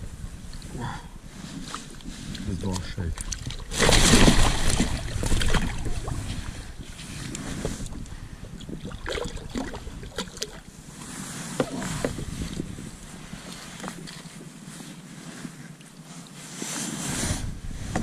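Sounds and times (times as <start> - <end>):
fish splashing in water: 3.2 - 6.2
wet net rustling: 3.2 - 7.2.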